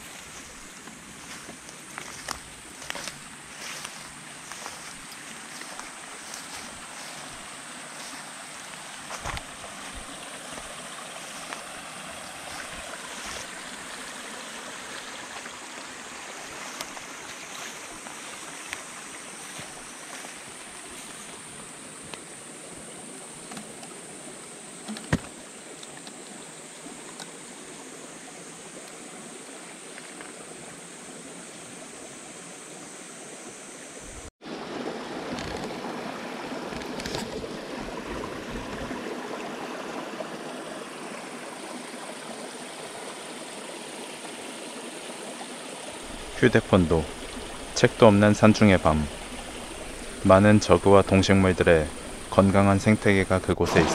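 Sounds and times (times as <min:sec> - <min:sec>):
night insects chorus: 0:00.0 - 0:34.3, 0:35.3 - 0:53.9
mountain stream rushing: 0:00.0 - 0:53.9.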